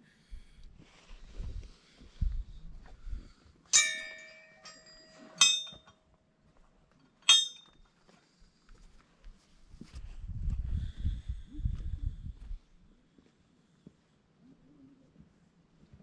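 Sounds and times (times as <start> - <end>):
metal temple bell strikes: 3.8 - 5.8, 7.3 - 7.6.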